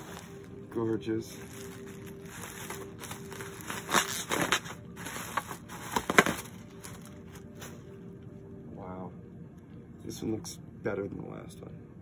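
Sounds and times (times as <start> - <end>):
bubble wrap crinkling: 0.0 - 8.2.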